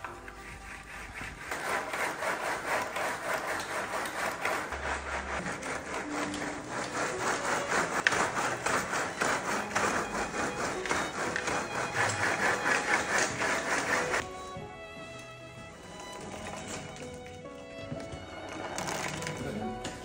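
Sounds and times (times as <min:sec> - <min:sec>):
rice balls rattling in bamboo trough: 0:18.3 - 0:19.7.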